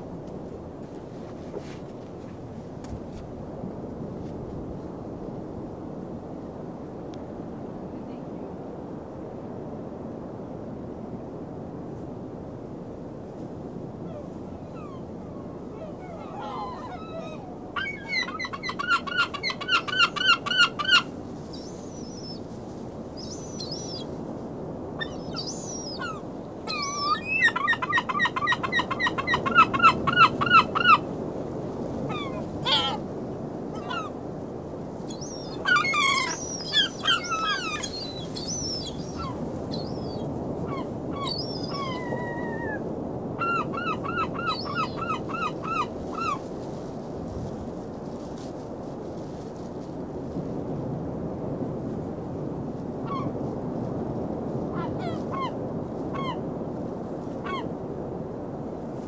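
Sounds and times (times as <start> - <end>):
steady background hiss: 0.0 - 59.0
gulls calling: 14.1 - 22.4, 23.2 - 24.1, 25.0 - 31.1, 32.1 - 33.0, 33.8 - 34.2, 35.1 - 42.8, 43.4 - 46.4.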